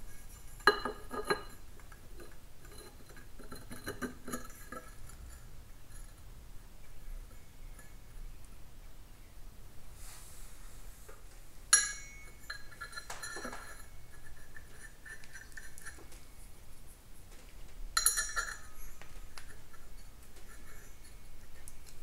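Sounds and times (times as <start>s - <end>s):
small metal parts clinking: 11.8s - 16.2s, 18.0s - 21.9s.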